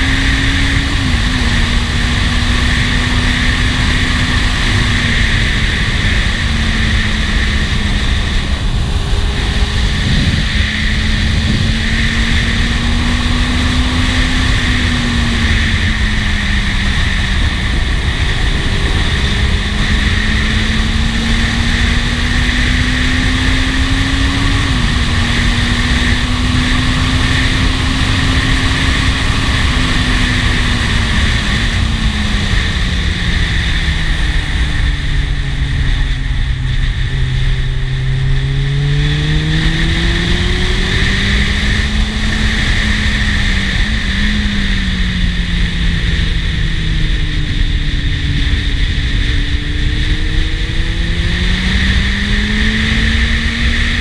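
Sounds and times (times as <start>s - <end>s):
motorcycle engine cruising: 0.0s - 54.0s
wind rush on microphone: 0.0s - 54.0s.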